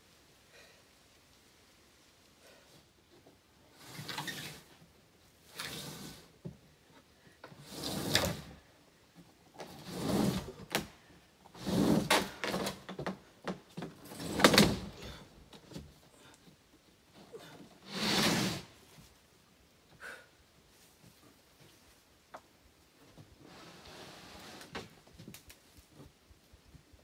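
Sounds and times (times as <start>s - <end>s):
wooden panels scraping on floor: 7.6s - 8.5s, 9.6s - 10.9s, 11.6s - 15.2s, 17.4s - 18.7s.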